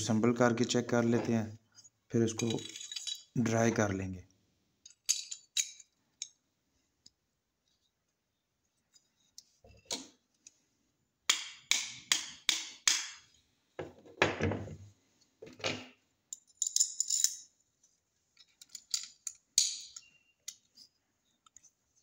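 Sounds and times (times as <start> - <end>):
metal clatter on table: 2.4 - 3.3
metal pistol parts clicking: 4.8 - 6.4, 18.4 - 20.7.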